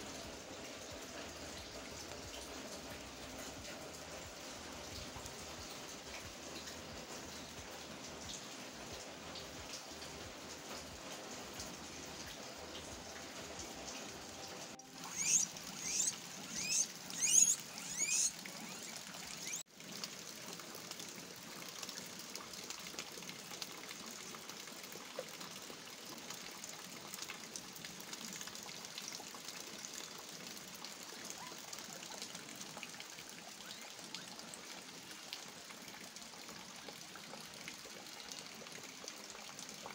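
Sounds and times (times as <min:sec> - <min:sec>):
rain falling and trickling: 0:00.0 - 0:39.9
guinea pig squeals: 0:15.0 - 0:19.6, 0:31.2 - 0:32.0.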